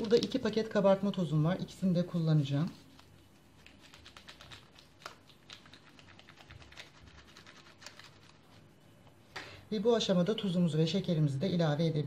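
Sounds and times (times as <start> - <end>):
packet crinkling and tapping: 0.0 - 0.5, 3.0 - 8.4.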